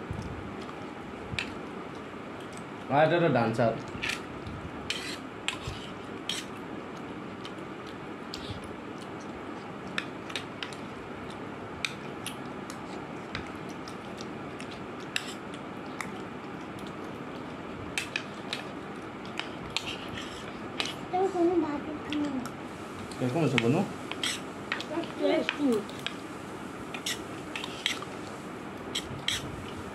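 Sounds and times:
steady low hiss: 17.6s - 29.9s.

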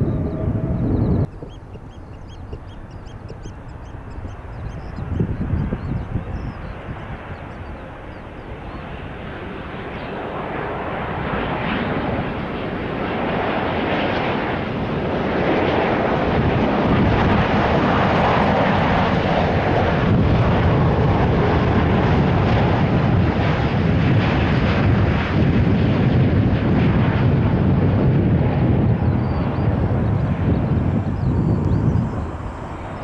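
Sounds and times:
jet engines roaring: 0.0s - 33.0s.

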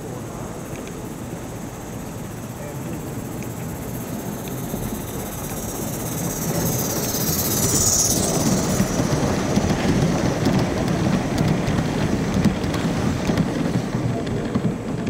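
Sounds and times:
model train wheels clattering: 2.2s - 15.0s
high squeal falling in pitch: 4.3s - 9.7s.

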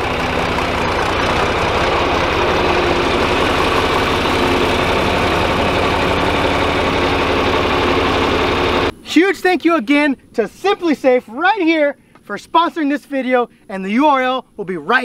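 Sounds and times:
tractor engine running: 0.0s - 9.0s.

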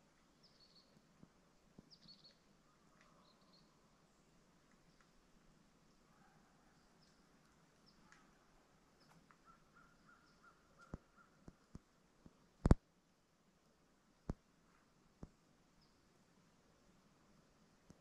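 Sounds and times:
faint bird calls: 1.9s - 3.9s, 5.9s - 11.6s.

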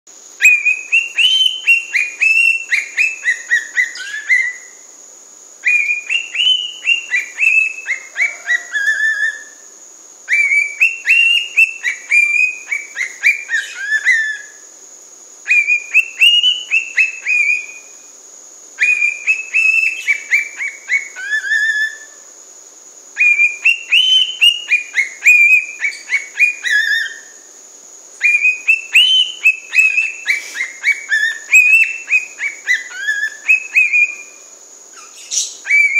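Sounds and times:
cockatiel whistling a tune: 0.5s - 4.7s, 5.6s - 9.6s, 10.3s - 14.5s, 15.5s - 17.8s, 18.8s - 22.1s, 23.2s - 27.3s, 28.2s - 34.4s, 35.0s - 35.9s.

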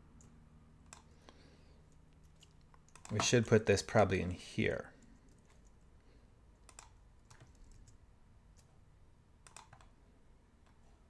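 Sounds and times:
keystrokes on computer keyboard: 0.2s - 1.2s, 2.2s - 3.5s, 6.6s - 8.8s, 9.4s - 10.0s.

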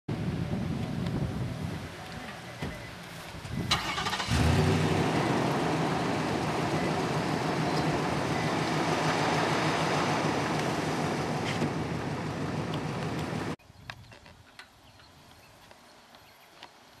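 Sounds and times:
vehicle rumbling over rough ground: 0.1s - 13.6s.

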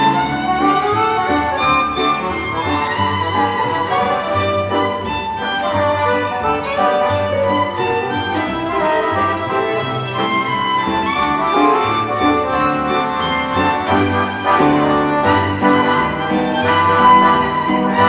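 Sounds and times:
classical string music with violin: 0.0s - 18.0s.

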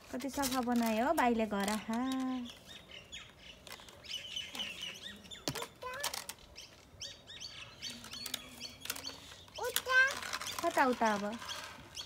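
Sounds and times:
small birds chirping: 0.2s - 12.0s
plastic rake scraping on concrete: 8.1s - 12.0s.

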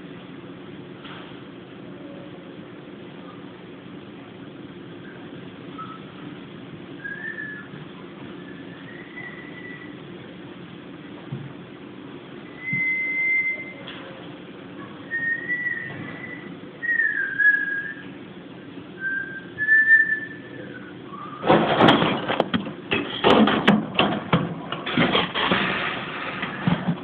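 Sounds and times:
soft whistle-like tones: 5.0s - 6.2s, 7.0s - 10.0s, 12.4s - 13.9s, 15.0s - 18.2s, 19.0s - 21.4s
loud rustling and clicking: 21.4s - 27.0s.

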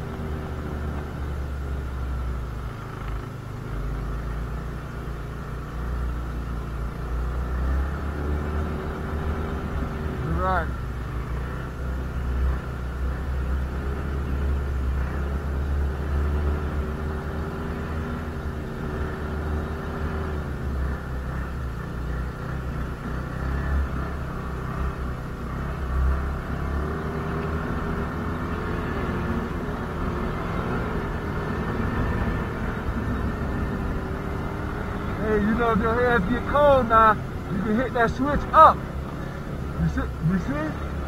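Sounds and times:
snowmobile engine rumbling: 28.8s - 41.0s.

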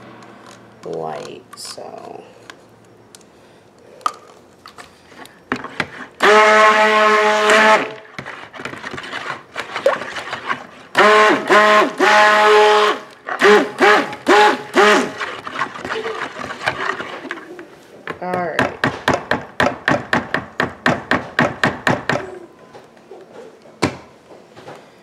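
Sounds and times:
stick blender motor whining: 5.8s - 17.6s.

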